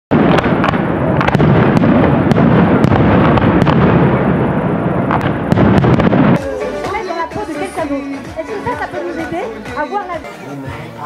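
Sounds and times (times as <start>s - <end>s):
fireworks exploding: 0.1s - 9.9s.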